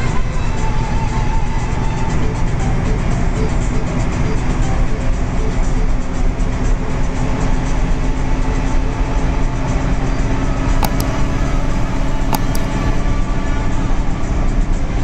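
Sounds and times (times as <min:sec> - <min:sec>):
bus engine drone and road noise: 0:00.0 - 0:15.0
sharp clicks or rattles: 0:10.8 - 0:13.0.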